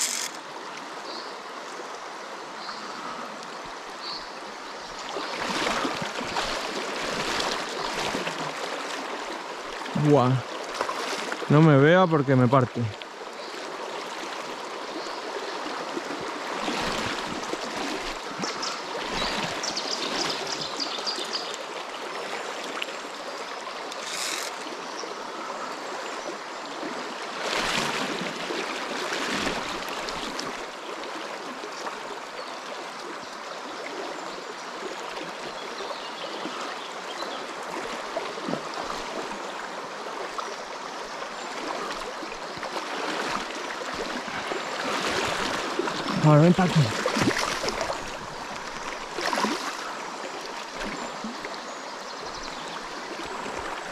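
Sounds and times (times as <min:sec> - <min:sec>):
river rushing over stones: 0:00.0 - 0:02.6, 0:03.6 - 0:12.2, 0:36.4 - 0:53.9.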